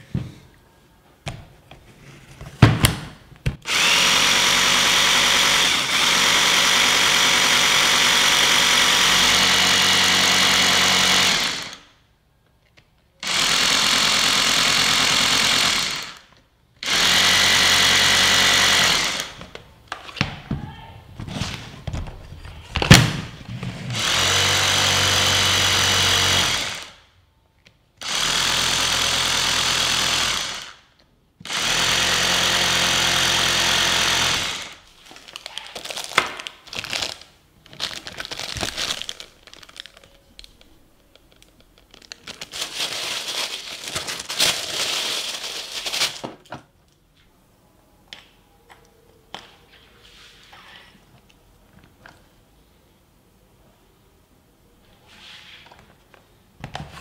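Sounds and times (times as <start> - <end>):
cordless hammer drill running: 3.7 - 11.8, 13.2 - 16.2, 16.8 - 19.4, 24.0 - 27.0, 28.0 - 30.8, 31.4 - 34.8.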